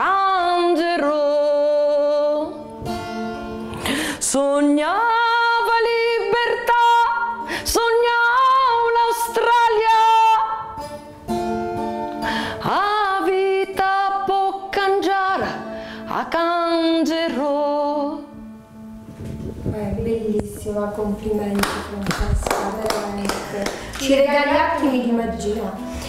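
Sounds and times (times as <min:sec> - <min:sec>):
woman singing slow ballad: 0:00.0 - 0:02.7, 0:03.8 - 0:10.8, 0:12.5 - 0:18.4
strummed guitar: 0:00.0 - 0:19.7, 0:21.3 - 0:26.0.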